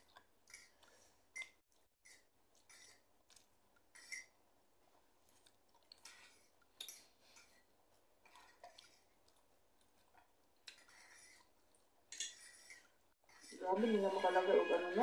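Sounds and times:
soft chewing: 0.0 - 13.6
wet mouth noises: 5.0 - 7.5.

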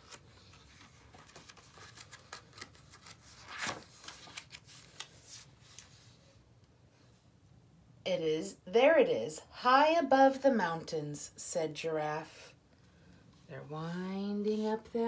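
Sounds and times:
paper pages rustling: 0.0 - 6.3.

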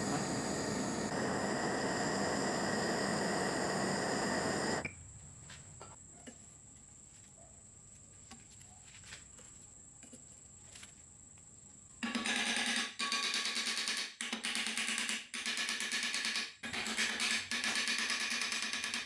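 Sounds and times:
blowtorch flame hissing: 0.0 - 4.9.

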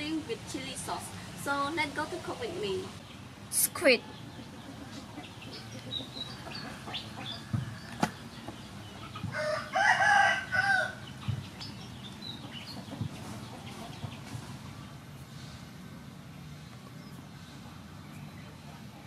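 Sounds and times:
faint background noise: 0.0 - 19.0
rooster crowing: 9.3 - 11.0.

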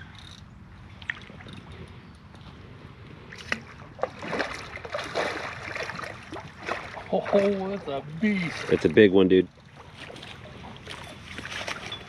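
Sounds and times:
fish thrashing water splashing: 3.4 - 9.0.

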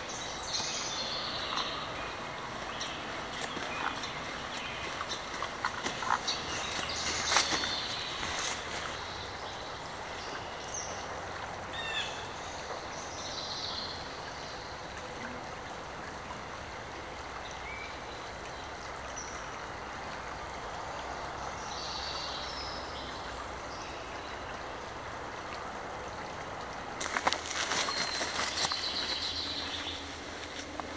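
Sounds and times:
creek rushing: 0.0 - 30.9
footsteps on gravel: 3.3 - 9.1, 27.0 - 30.9.

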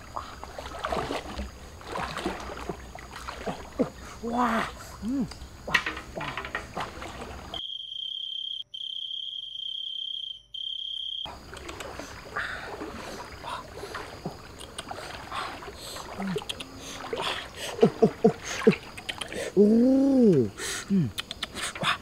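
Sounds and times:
water sloshing in a basin: 0.0 - 7.6, 11.3 - 19.6
cricket trilling: 0.0 - 22.0.

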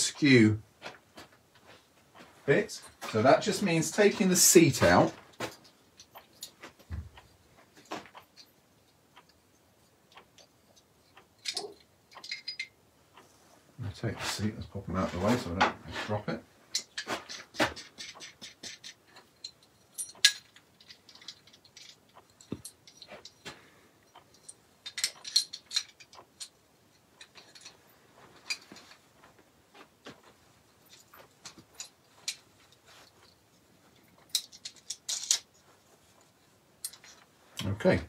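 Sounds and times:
small metal clicks and rattles: 4.9 - 13.3, 16.7 - 37.8.

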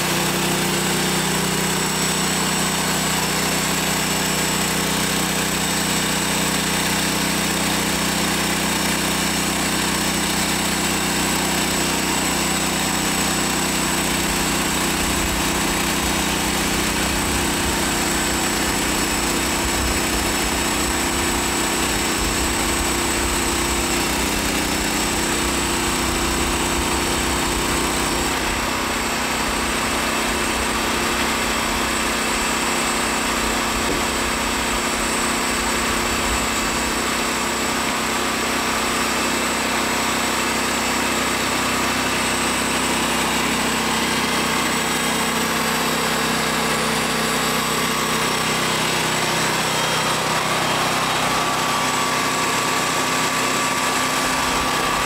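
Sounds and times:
band blade cutting log: 0.0 - 35.8
sawmill engine running under load: 0.0 - 55.0.

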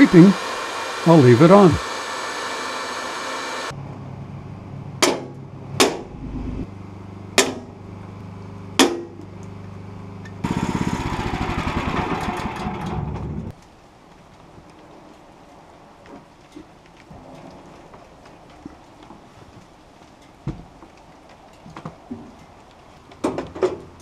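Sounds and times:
electric drill running: 0.0 - 3.7.

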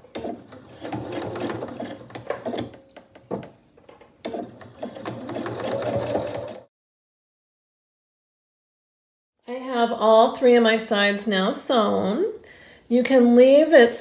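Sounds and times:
sewing machine stitching: 0.0 - 2.8, 4.2 - 6.7.

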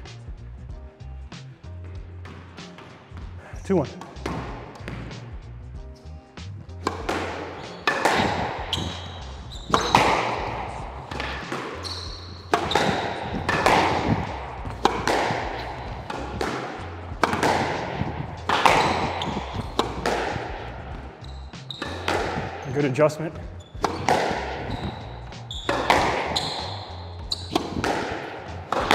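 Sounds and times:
squash ball cracks: 4.0 - 5.4, 6.8 - 21.2, 21.8 - 28.9
high shoe squeaks: 6.8 - 28.9.

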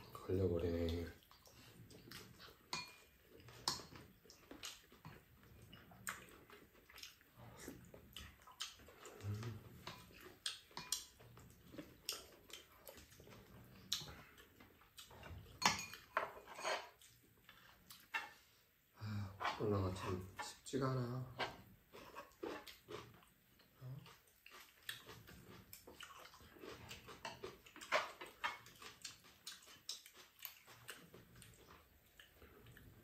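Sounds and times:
utensils clinking against pan and bowls: 2.7 - 4.0, 15.6 - 16.9.

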